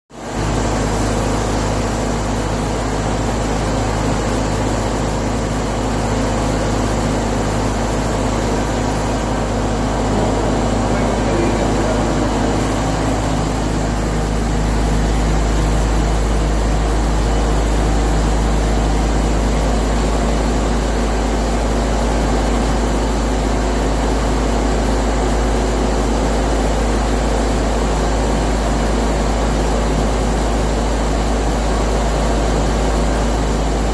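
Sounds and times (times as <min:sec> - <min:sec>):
spray gun hissing: 0:00.2 - 0:22.3
ventilation drone: 0:00.2 - 0:33.9.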